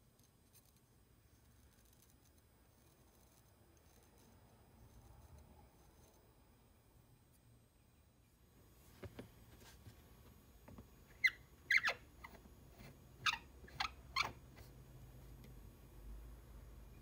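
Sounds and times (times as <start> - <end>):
wooden knob squeaking: 11.1 - 14.4.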